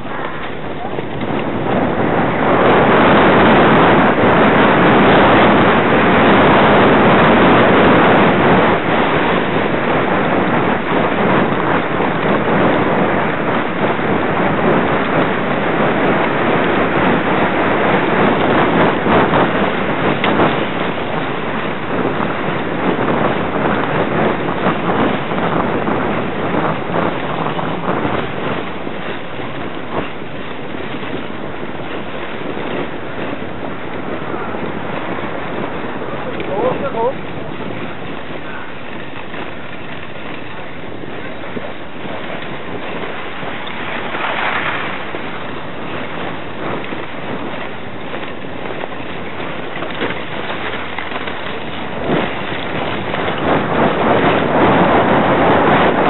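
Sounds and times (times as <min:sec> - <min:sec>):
sledge runners scraping on snow: 0:00.0 - 0:56.0
wind blowing over microphone: 0:00.0 - 0:56.0.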